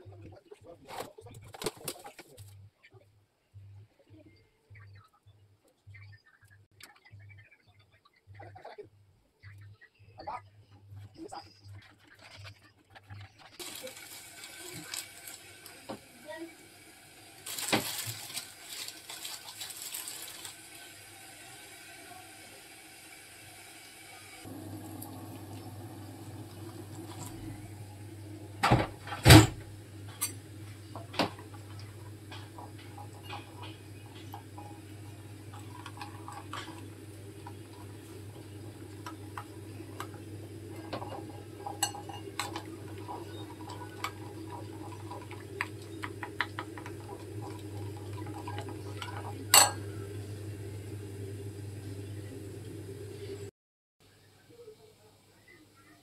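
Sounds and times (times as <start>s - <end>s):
spoon clinking and scraping glass: 40.8s - 49.9s.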